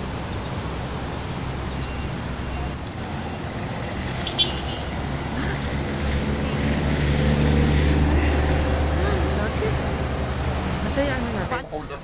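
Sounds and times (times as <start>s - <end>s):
vehicle engine running: 0.0s - 11.6s
road traffic: 0.0s - 12.0s.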